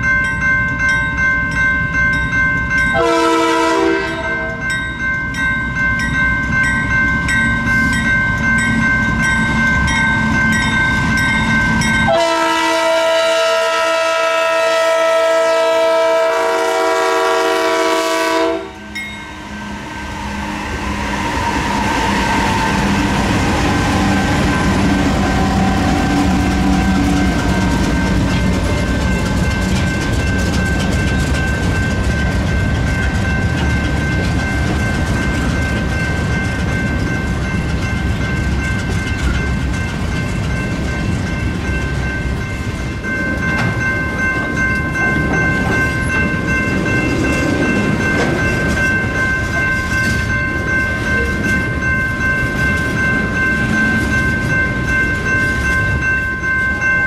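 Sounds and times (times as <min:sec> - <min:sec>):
crossing bell ringing: 0:00.0 - 0:57.0
locomotive rumbling past: 0:00.2 - 0:57.0
locomotive air horn: 0:03.0 - 0:04.6, 0:12.1 - 0:18.9
train wheels clicking over rail joints: 0:20.1 - 0:56.7.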